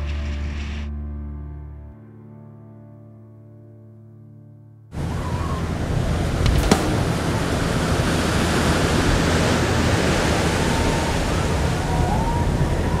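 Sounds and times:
ocean waves breaking: 5.0s - 13.0s.

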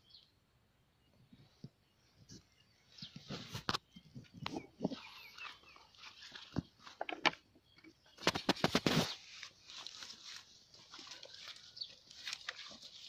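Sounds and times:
footsteps crunching through dry grass: 4.9s - 7.0s, 8.2s - 13.0s
loud crackling and rustling: 8.2s - 13.0s.

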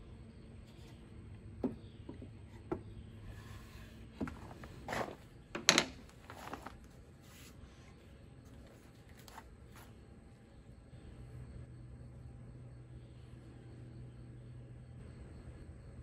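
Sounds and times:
wood knocking and scraping on wood: 0.6s - 7.5s.

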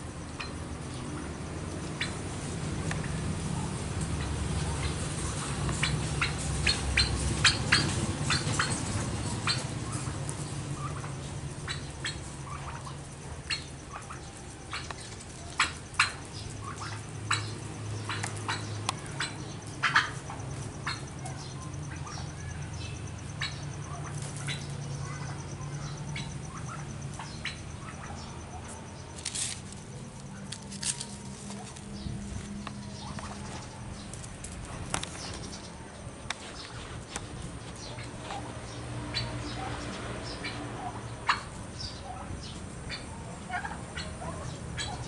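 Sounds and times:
turkey feet clicking on gravel: 3.9s - 21.1s, 28.6s - 39.2s.

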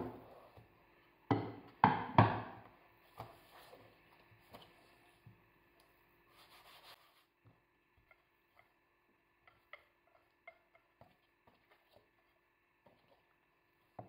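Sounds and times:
rolling pin on pastry: 6.3s - 7.3s.

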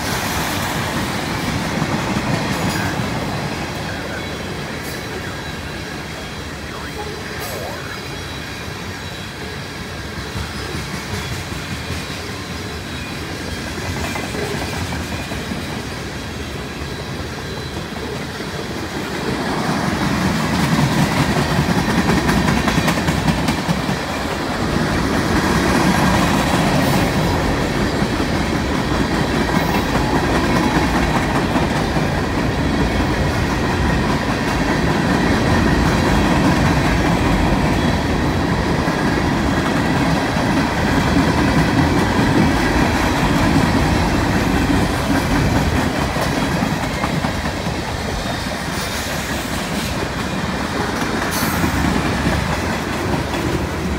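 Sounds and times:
freight train wheels rumbling: 0.0s - 53.9s.

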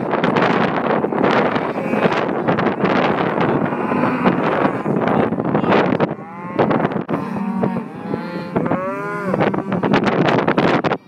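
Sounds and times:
cattle mooing: 1.4s - 10.2s.

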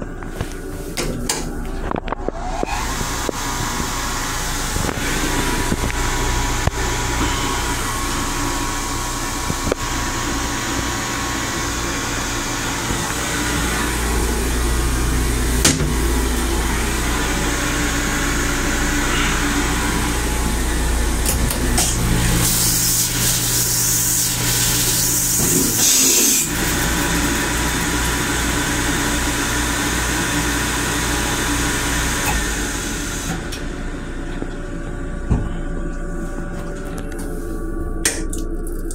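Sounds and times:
deep rumble: 0.0s - 10.4s
ventilation hum and rushing: 0.0s - 38.9s.

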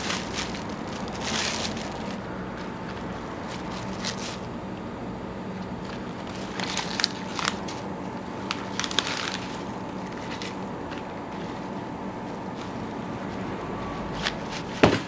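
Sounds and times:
kitchen hum: 0.0s - 15.0s.

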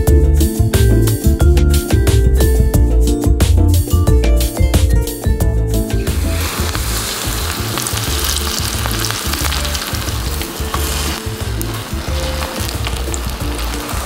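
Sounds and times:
deep-frying sizzle: 5.3s - 14.0s.

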